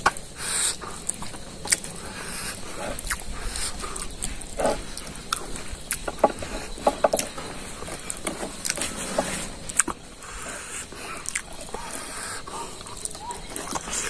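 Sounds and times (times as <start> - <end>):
man chewing food: 0.0 - 14.0
wet mouth clicks and smacks: 0.6 - 1.9, 3.0 - 4.3, 11.2 - 11.5.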